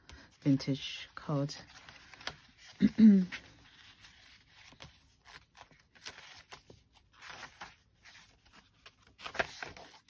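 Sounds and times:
paper pages turning: 0.3s - 10.0s.

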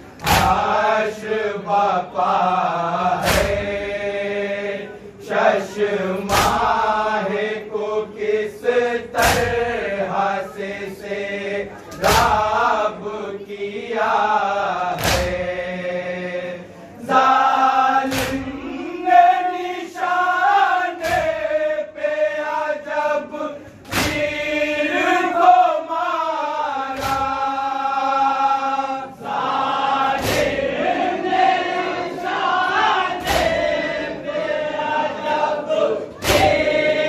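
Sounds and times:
men chanting together: 0.0s - 37.0s
hands slapping chests: 0.1s - 0.8s, 3.2s - 3.7s, 6.2s - 6.8s, 9.1s - 9.6s, 11.9s - 12.5s, 14.9s - 15.4s, 18.0s - 18.6s, 21.0s - 21.4s, 23.8s - 24.4s, 26.9s - 27.5s, 30.1s - 30.7s, 33.1s - 33.8s, 36.2s - 36.9s.

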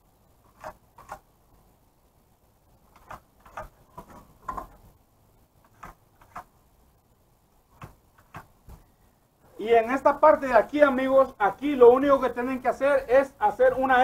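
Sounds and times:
pencil scratches: 0.4s - 1.3s, 2.9s - 4.8s, 5.6s - 6.6s.

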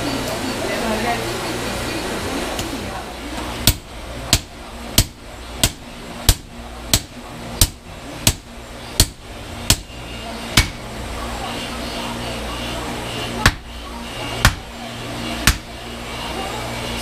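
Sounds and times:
sledgehammers striking chisel on steel: 3.6s - 10.0s, 10.6s - 10.8s, 13.4s - 13.7s, 14.4s - 14.7s, 15.4s - 15.7s.

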